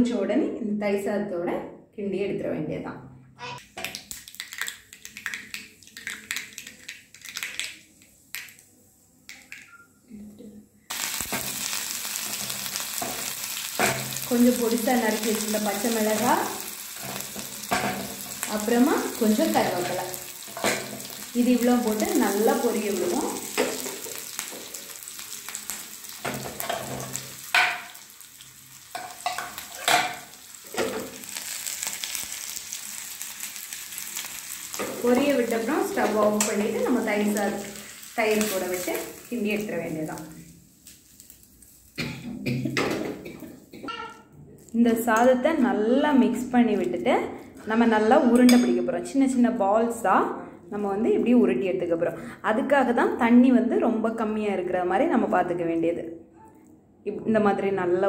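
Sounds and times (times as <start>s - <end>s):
mustard seeds popping in hot oil: 3.6s - 8.7s, 10.9s - 42.1s.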